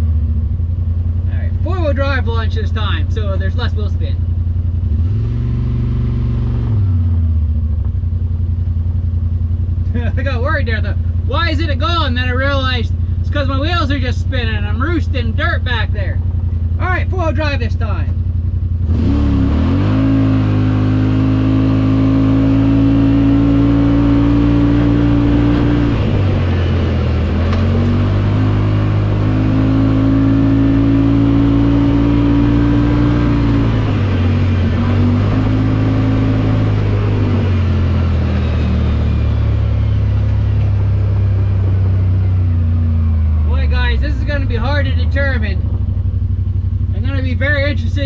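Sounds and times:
engine revving at full throttle: 4.8 - 7.5, 18.7 - 48.0.

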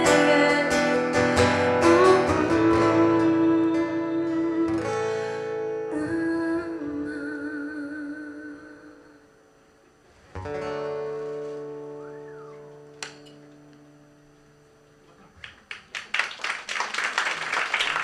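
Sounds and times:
acoustic guitar chord ringing: 0.0 - 15.3
audience applause: 15.4 - 18.0.

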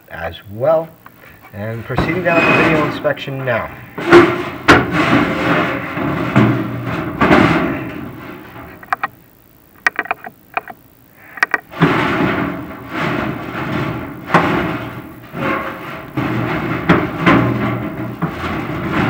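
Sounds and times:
camera scraping inside metal pipe: 1.3 - 9.1
sharp clicks: 8.8 - 9.2, 9.8 - 11.7.

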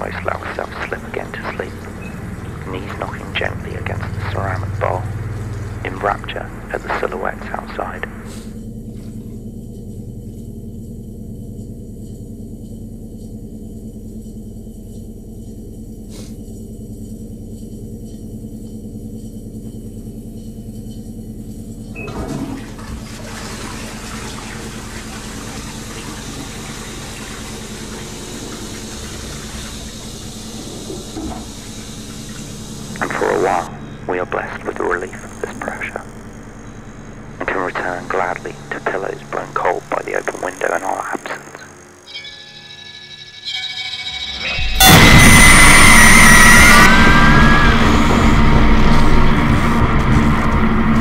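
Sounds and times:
low steady hum: 0.0 - 43.1
toilet flushing: 22.0 - 33.6.

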